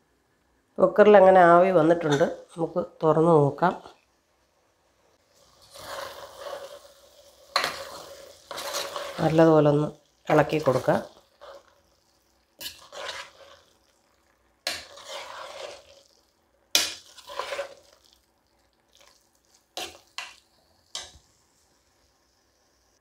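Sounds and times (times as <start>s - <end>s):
spatula scraping pot: 5.4s - 18.2s, 19.8s - 21.2s.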